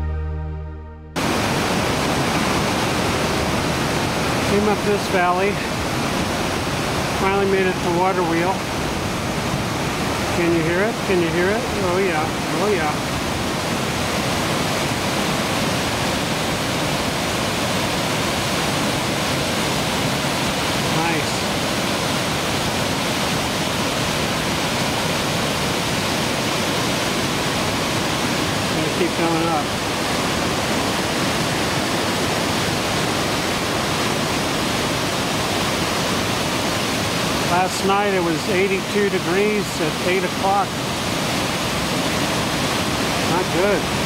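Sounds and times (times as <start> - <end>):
whitewater cascading: 1.2 - 44.0.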